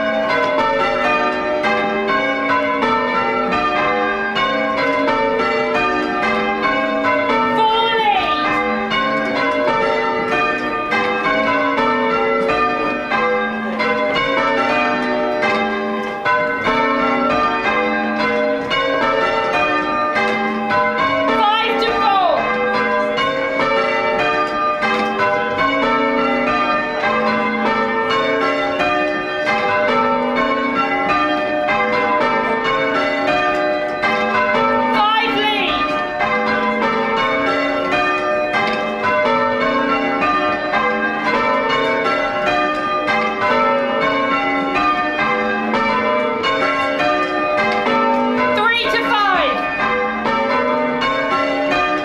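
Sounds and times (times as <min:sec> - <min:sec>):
church bells ringing in changes: 0:00.0 - 0:52.0.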